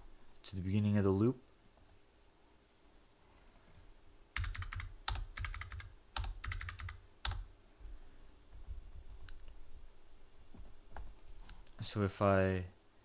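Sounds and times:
typing on a computer keyboard: 0:04.4 - 0:07.5.

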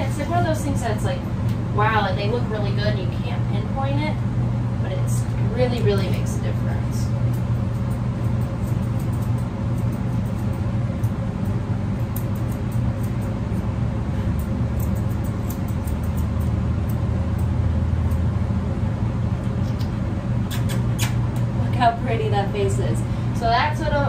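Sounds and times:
steady low hum: 0:00.0 - 0:24.0
scissors snipping hair: 0:05.2 - 0:18.3, 0:19.4 - 0:21.5.

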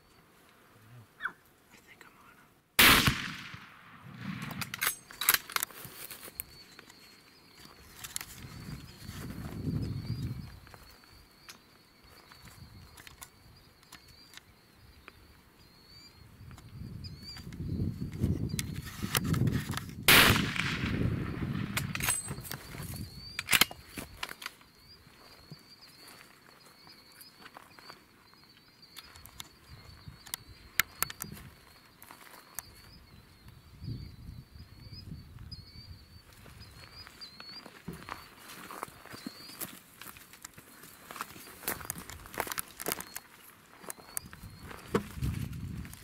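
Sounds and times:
loud rifle shot: 0:02.8 - 0:04.8, 0:20.1 - 0:22.1
sharp clicks: 0:21.6 - 0:24.6.

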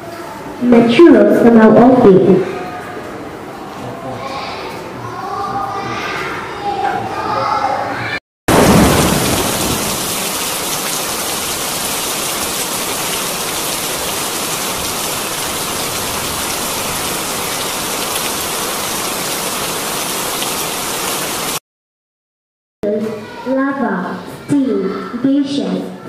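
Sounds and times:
steady rushing hiss: 0:08.5 - 0:21.6.

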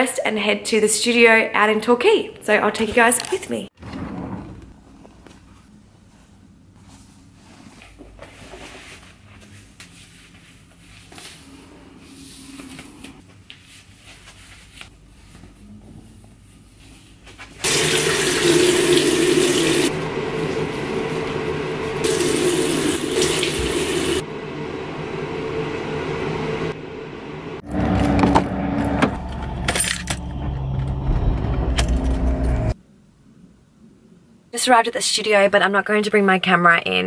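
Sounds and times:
tap water running into sink: 0:17.6 - 0:19.9, 0:21.9 - 0:24.2
car engine running inside cabin: 0:25.4 - 0:32.8.

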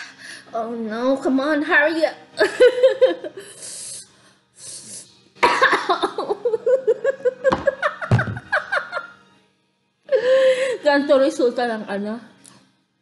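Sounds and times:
woman laugh-crying: 0:02.4 - 0:03.6, 0:05.4 - 0:09.2
woman coughing: 0:05.4 - 0:06.2
dull knock: 0:07.5 - 0:08.5.

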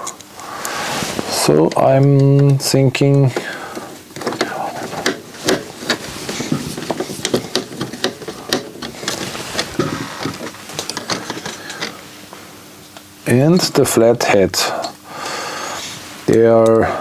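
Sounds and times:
handling knocks: 0:01.5 - 0:12.0.

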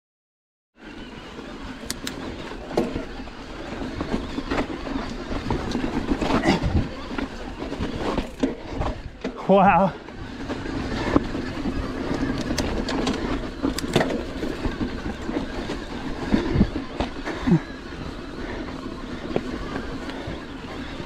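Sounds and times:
bike knocking and rattling: 0:00.8 - 0:21.0
tyres rumbling over dirt and stones: 0:00.8 - 0:21.0.

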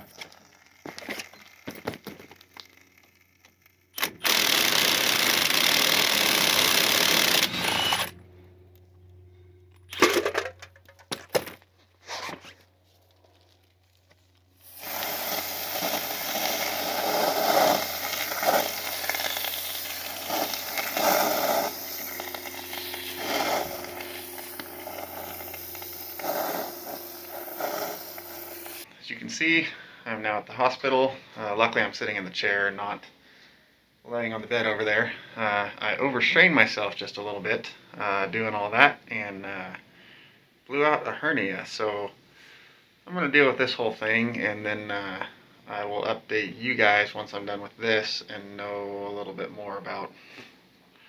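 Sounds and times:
loud hiss: 0:14.5 - 0:28.9
water hissing on hot metal: 0:14.6 - 0:28.9.

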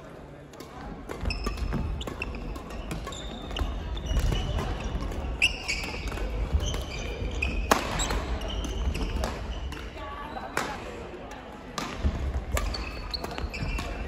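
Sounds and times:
rackets hitting shuttlecock: 0:00.5 - 0:10.9, 0:11.7 - 0:14.0
shoes squeaking on wooden floor: 0:05.4 - 0:09.7, 0:12.7 - 0:14.0.

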